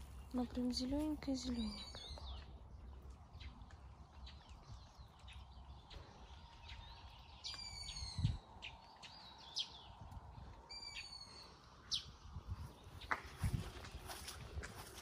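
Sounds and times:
bird long falling calls: 1.6 - 13.1
low rumble on microphone: 1.7 - 15.0.

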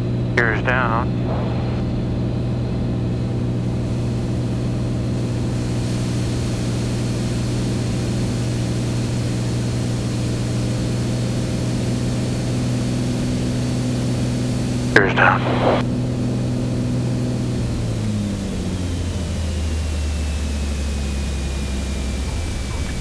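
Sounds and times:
propeller engine drone: 0.0 - 23.0
rush of air: 1.2 - 7.6.

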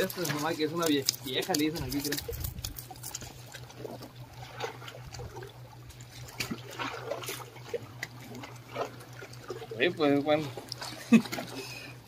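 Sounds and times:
small splashes: 0.0 - 12.0
water lapping among rocks: 0.0 - 12.0.

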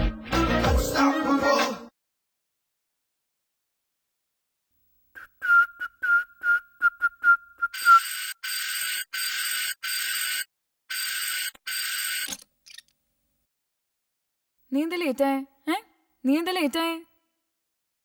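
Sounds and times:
person whistling short notes: 5.2 - 8.3
electric doorbell buzzer: 7.8 - 12.3.

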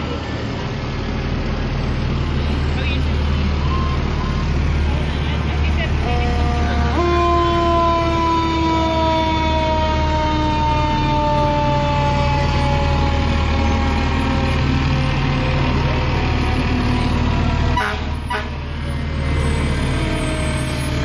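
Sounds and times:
fire truck diesel engine rumbling: 0.0 - 21.0
siren winding down: 6.0 - 17.6.

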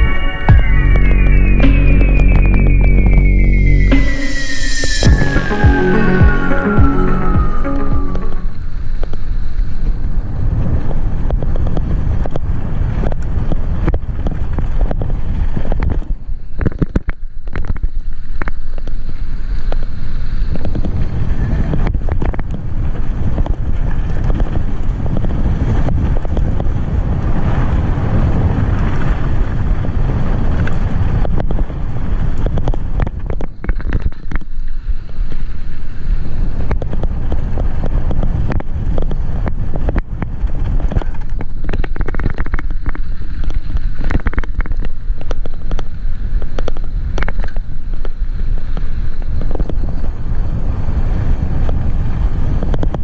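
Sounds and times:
wind noise on microphone: 0.0 - 53.0
bike rattling over bumps: 10.2 - 19.2, 20.6 - 53.0.

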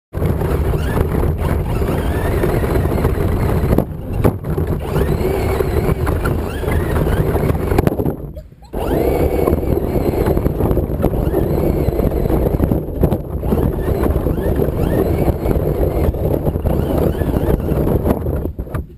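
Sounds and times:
toy truck motor whine: 0.2 - 8.0, 8.7 - 18.4.

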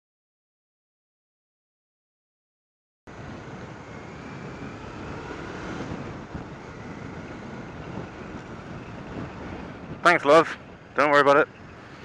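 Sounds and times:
wind noise on microphone: 3.1 - 12.0.

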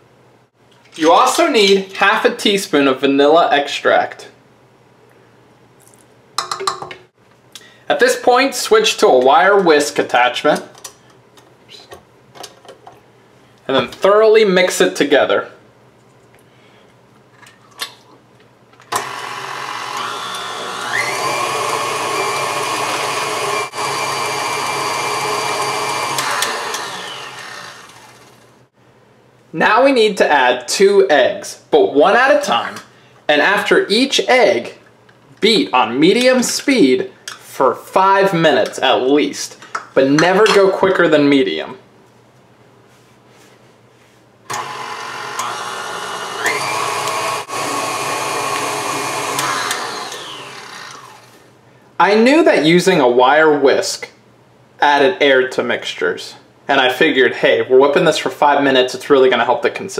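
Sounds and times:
stand mixer whisking batter: 19.0 - 28.4, 44.6 - 51.3.

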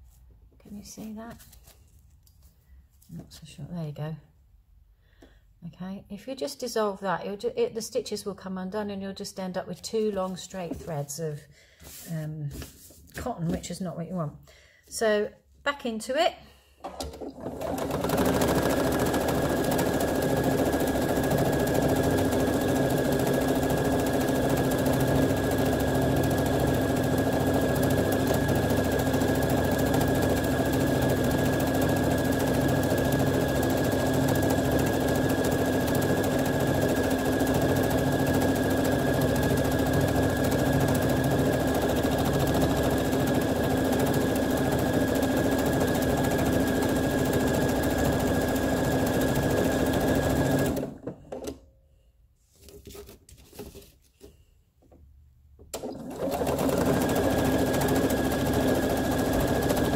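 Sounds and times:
sewing machine running: 16.8 - 51.1, 55.8 - 59.9.

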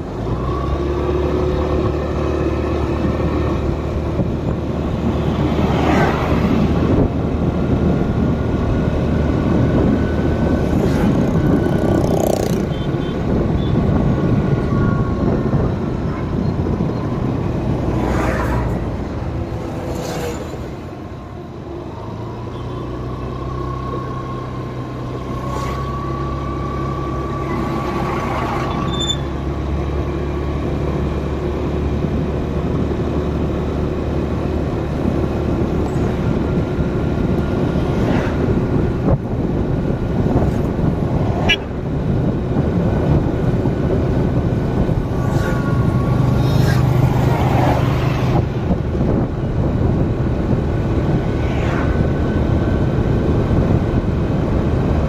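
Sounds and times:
road noise: 0.0 - 55.0.

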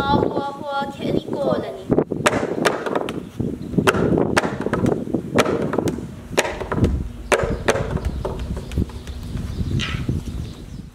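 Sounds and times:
gourd drum beaten: 3.8 - 9.5.

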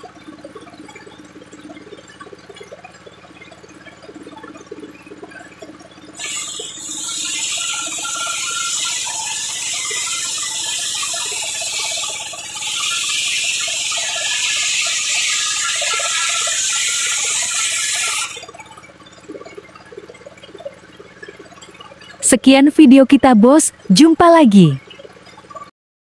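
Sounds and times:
circular saw blade cutting wood: 6.2 - 18.5.

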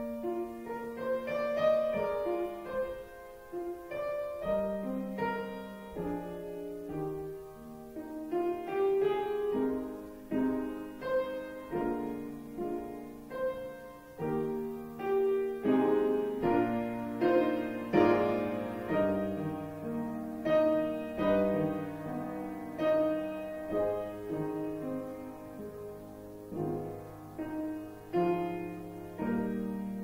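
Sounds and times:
slow solo piano chords: 0.0 - 30.0.

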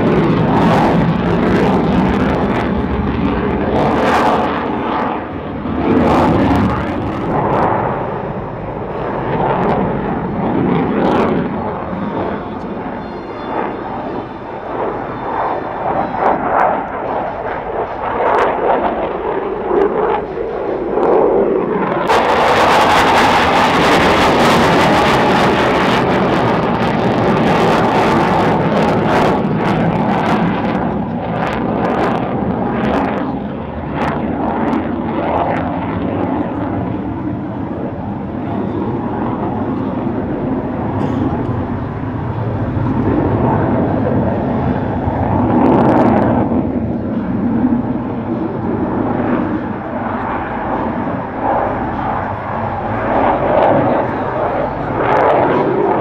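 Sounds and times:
jet engine roaring overhead: 0.0 - 56.0.

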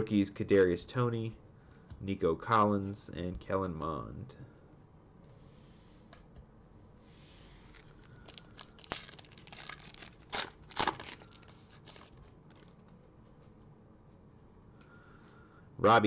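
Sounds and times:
foil wrapper tearing and crinkling: 7.7 - 12.8.

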